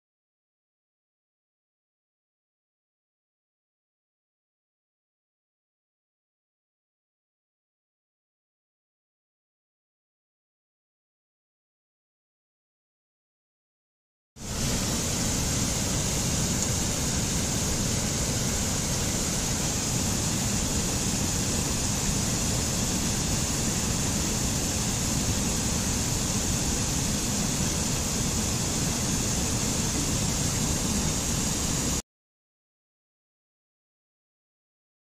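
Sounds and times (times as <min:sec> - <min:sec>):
mountain stream rushing over rocks: 0:14.4 - 0:32.0.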